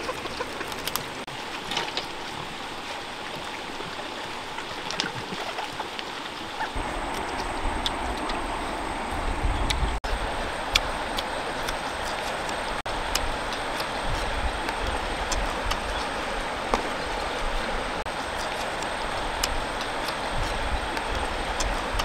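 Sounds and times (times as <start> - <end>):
river running over stones: 0.0 - 22.0.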